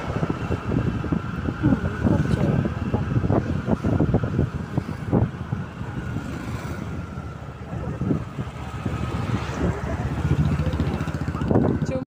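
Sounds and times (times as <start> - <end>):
road noise from moving vehicle: 0.0 - 12.0
wind buffeting microphone: 0.0 - 12.0.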